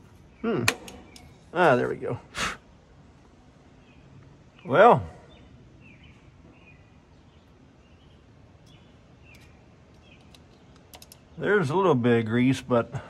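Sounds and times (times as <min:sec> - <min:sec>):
faint bird chirps: 0:00.0 - 0:02.2, 0:03.7 - 0:11.6
light clicks: 0:08.6 - 0:11.3.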